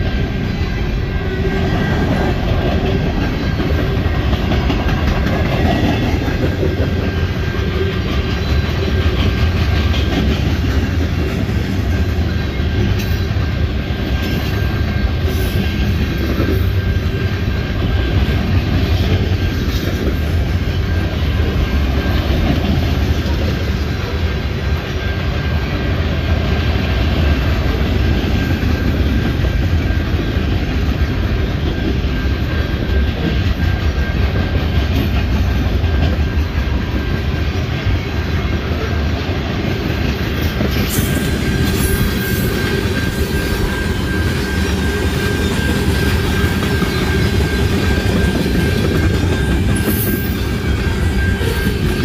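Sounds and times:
train wheels rumbling on rail: 0:00.0 - 0:52.0
high-pitched ring: 0:40.6 - 0:52.0.

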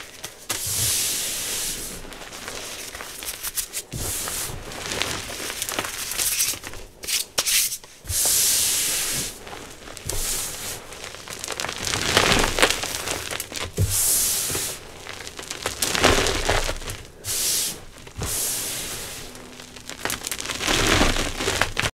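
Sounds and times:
hands crushing chalk: 0:02.1 - 0:21.9
chalk pieces cracking: 0:02.4 - 0:04.0, 0:05.1 - 0:08.0, 0:09.1 - 0:21.9.

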